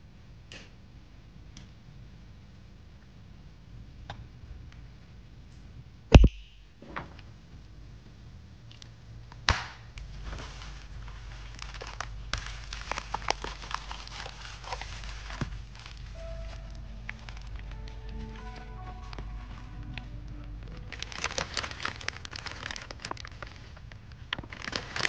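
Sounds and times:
plastic crinkling and tapping: 10.3s - 17.5s, 20.8s - 25.0s.

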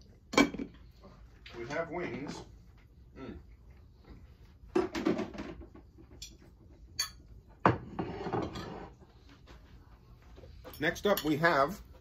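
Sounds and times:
dishes clattering: 0.3s - 0.8s, 4.7s - 9.0s.

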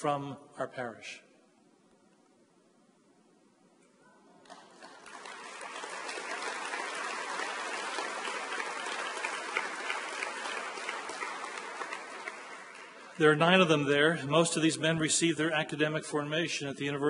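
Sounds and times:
audience applauding: 4.4s - 13.9s.

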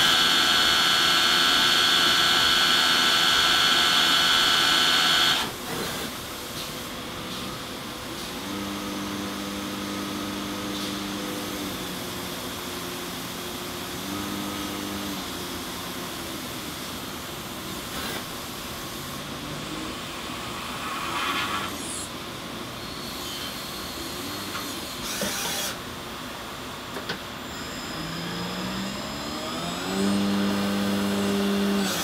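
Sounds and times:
motor whine: 0.0s - 5.9s, 27.4s - 32.0s.

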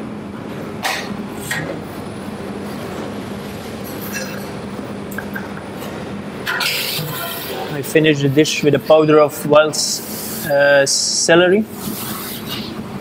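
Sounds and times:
short hissing noises: 11.8s - 12.7s.

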